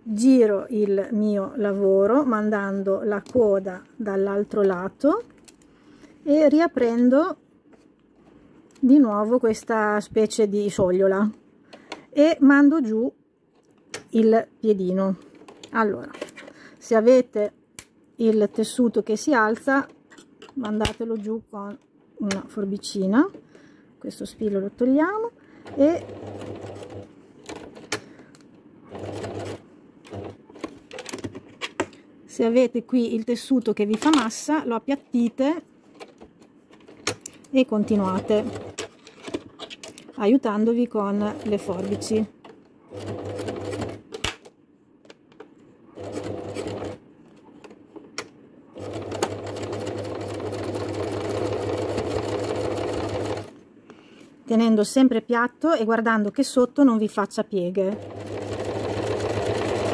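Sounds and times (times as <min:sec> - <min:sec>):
electric sewing machine stitching: 0:25.7 - 0:27.1, 0:48.8 - 0:53.5, 0:57.9 - 0:59.9.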